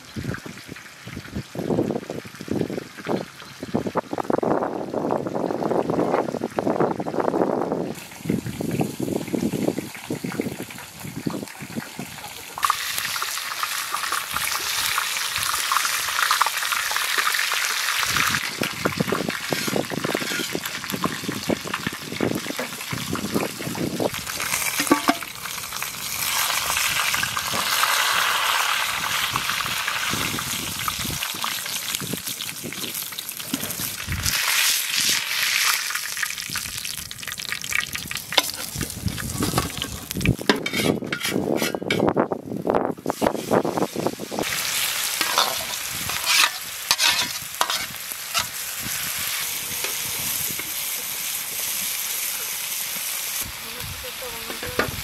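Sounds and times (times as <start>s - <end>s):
meat sizzling in oil: 0.0s - 55.0s
metal spatula scraping pan: 19.3s - 20.8s, 24.7s - 25.3s, 40.5s - 42.2s, 45.1s - 48.6s.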